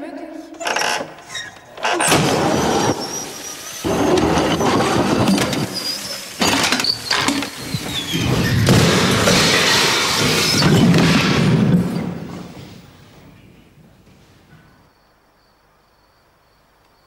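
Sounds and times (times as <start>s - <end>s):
wooden mechanism grinding: 0.6s - 12.5s.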